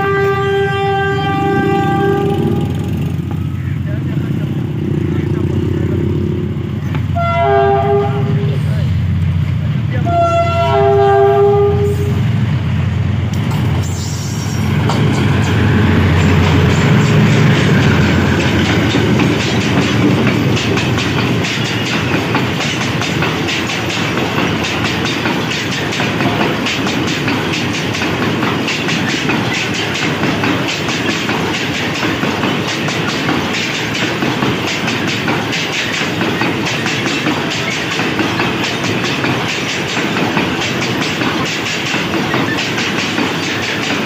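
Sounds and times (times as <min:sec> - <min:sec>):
locomotive horn chord: 0:00.0 - 0:03.0, 0:07.1 - 0:08.7, 0:10.0 - 0:12.2
train wheels clicking over rail joints: 0:00.0 - 0:07.2, 0:13.2 - 0:44.0
locomotive engine running loud: 0:00.3 - 0:44.0.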